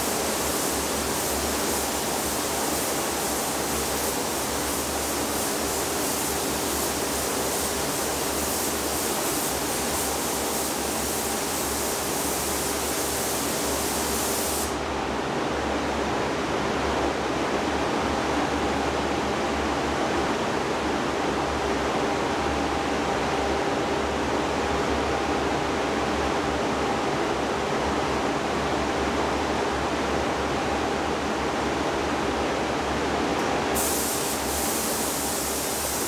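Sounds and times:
spray gun hissing: 0:00.0 - 0:14.8, 0:33.8 - 0:36.0
ventilation noise with faint hum: 0:00.0 - 0:36.0.

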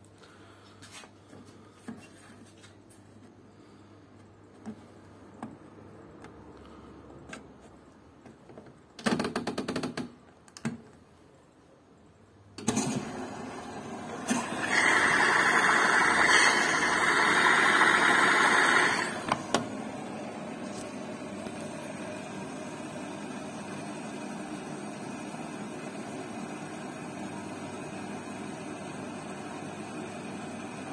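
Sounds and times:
water rushing into washing machine: 0:12.6 - 0:19.6.

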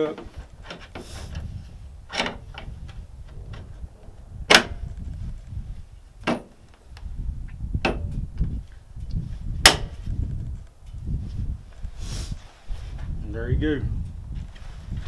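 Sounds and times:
low rumble: 0:01.2 - 0:12.1.

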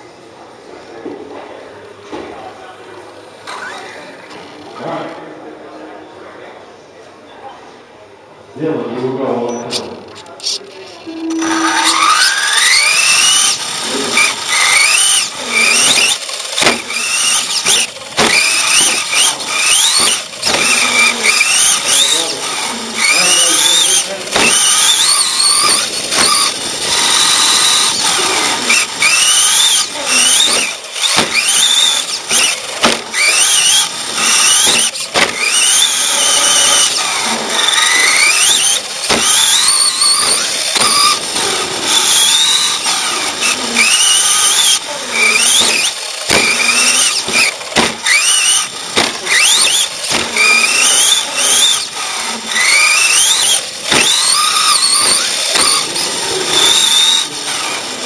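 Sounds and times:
electric motor whining: 0:09.6 - 0:58.0
toy truck knocking on bumps: 0:14.2 - 0:22.2, 0:23.0 - 0:51.9, 0:52.5 - 0:56.0.

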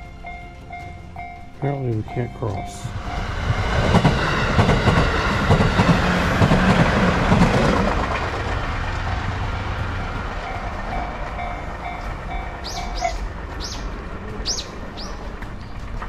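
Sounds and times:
level crossing warning bell ringing: 0:00.0 - 0:03.5, 0:10.0 - 0:13.2
electric train passing: 0:00.0 - 0:16.0
train wheels clattering over rail joints: 0:02.9 - 0:16.0.

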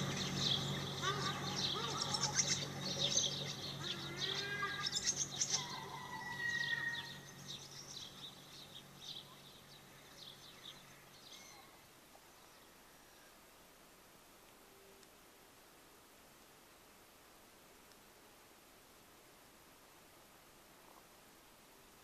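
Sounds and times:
birds chirping: 0:00.0 - 0:13.4
low steady hum: 0:00.0 - 0:22.0.

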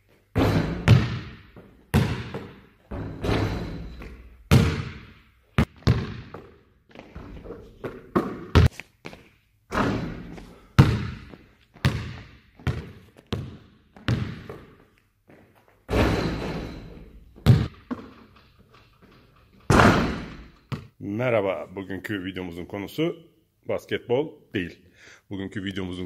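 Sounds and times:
basketball banging off backboard and rim: 0:00.3 - 0:08.7, 0:09.7 - 0:14.8, 0:15.9 - 0:20.9
basketball bouncing on gym floor: 0:00.3 - 0:08.7, 0:09.7 - 0:18.4, 0:19.0 - 0:21.0.

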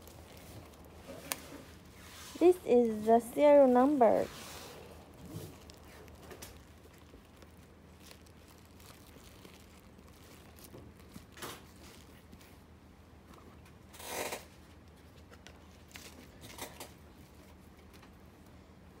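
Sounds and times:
sneaker and paper card rustling: 0:00.0 - 0:12.7.

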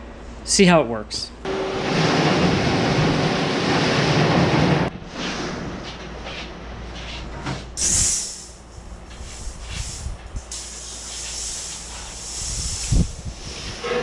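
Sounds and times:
metal sheet scraping on concrete: 0:11.9 - 0:14.0.

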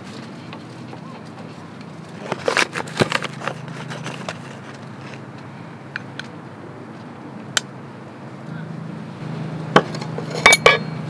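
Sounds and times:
crinkly scrapes of foil bag: 0:02.1 - 0:05.3.

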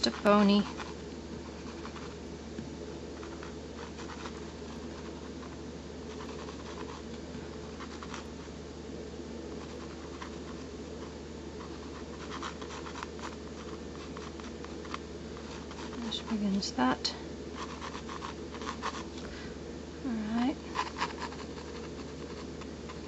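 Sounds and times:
low electrical hum: 0:00.0 - 0:23.0
pencil scratching sketching strokes: 0:03.2 - 0:07.1, 0:07.8 - 0:08.4, 0:09.6 - 0:16.5, 0:17.6 - 0:19.1, 0:20.7 - 0:23.0.

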